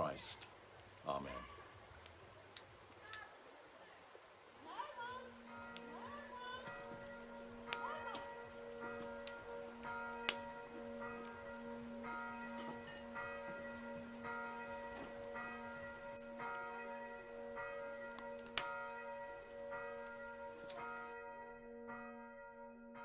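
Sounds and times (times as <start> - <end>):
wood fire hissing: 0.0 - 4.9
fire popping: 0.0 - 21.0
church bells ringing: 4.8 - 23.0.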